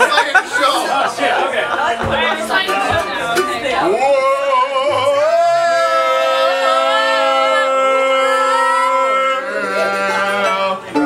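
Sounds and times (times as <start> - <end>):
string band playing: 0.0 - 4.0, 9.5 - 11.0
voices singing in harmony: 3.9 - 11.0.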